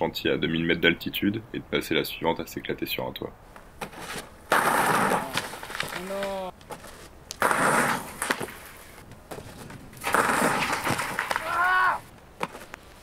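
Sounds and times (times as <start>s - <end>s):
skier crashing in powder snow: 4.0s - 12.7s
person yelling: 11.4s - 12.1s.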